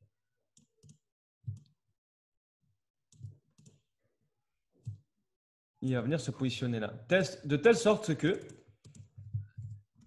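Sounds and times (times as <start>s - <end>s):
computer mouse clicks: 0.6s - 1.7s, 3.1s - 3.8s, 8.4s - 10.0s.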